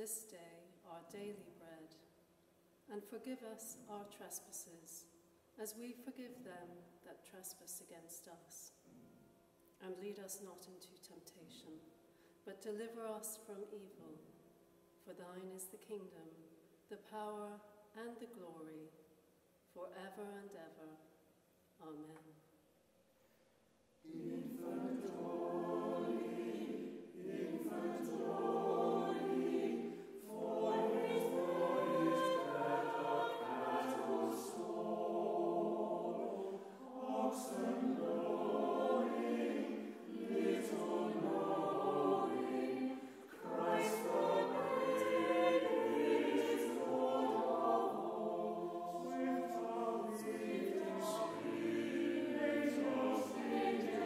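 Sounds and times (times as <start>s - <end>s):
choir singing a carol: 24.0s - 54.0s.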